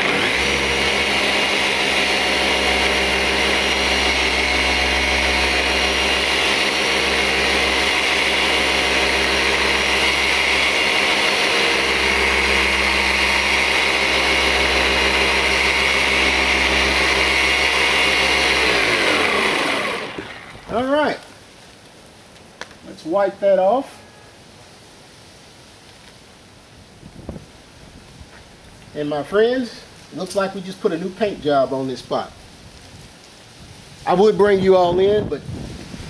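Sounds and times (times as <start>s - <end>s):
car polisher running: 0.0s - 20.9s.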